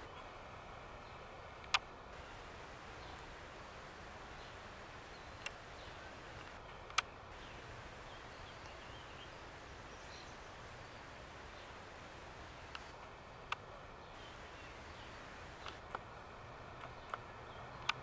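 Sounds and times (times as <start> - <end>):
steady hiss: 0.0 - 6.6, 7.2 - 16.3
sharp clicks: 5.3 - 7.6, 12.4 - 12.9, 14.2 - 16.0
faint high bird chirps: 7.4 - 12.7.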